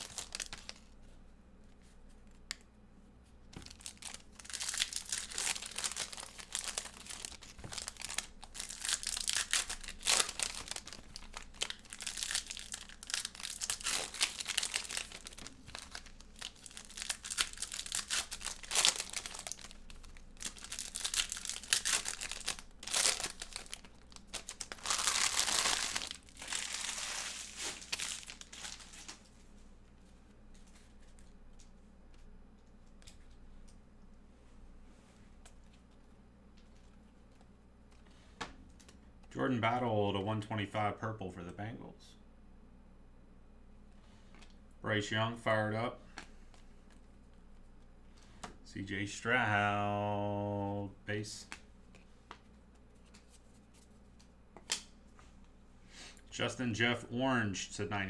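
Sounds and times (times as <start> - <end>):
foil wrappers tearing and crinkling: 0.0 - 0.9, 3.6 - 29.3
cards shuffling: 51.4 - 54.9.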